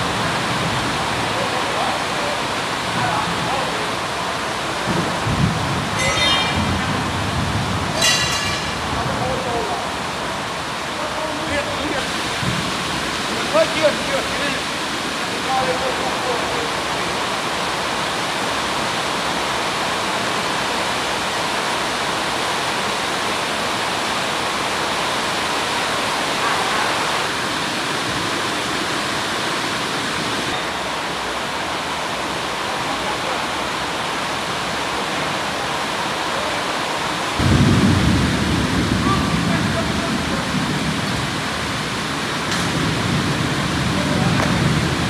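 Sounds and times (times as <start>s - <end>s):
steady industrial rushing noise: 0.0s - 22.1s.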